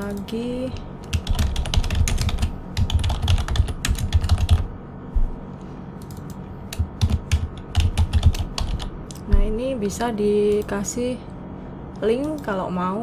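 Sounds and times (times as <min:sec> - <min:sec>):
computer keyboard typing: 0:01.0 - 0:04.7, 0:06.0 - 0:09.5.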